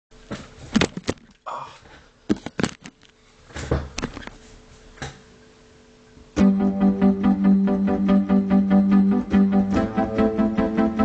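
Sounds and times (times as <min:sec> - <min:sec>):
electronic keyboard chords: 0:06.4 - 0:11.0.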